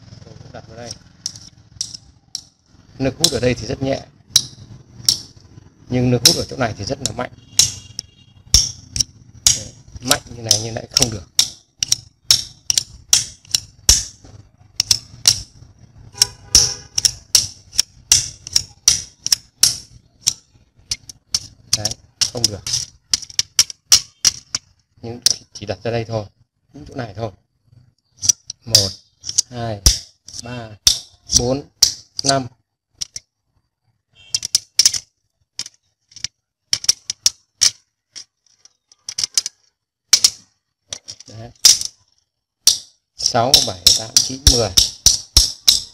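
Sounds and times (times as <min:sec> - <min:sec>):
screwdriver clicking against magnet: 0:10.5 - 0:14.1, 0:14.7 - 0:15.5, 0:16.2 - 0:24.7, 0:34.3 - 0:39.6, 0:42.7 - 0:45.9.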